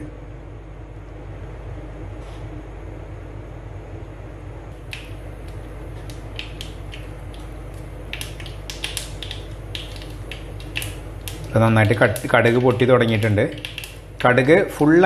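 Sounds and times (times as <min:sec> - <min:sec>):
steady low hum: 0:00.0 - 0:15.0
mustard seeds popping in oil: 0:04.8 - 0:14.8.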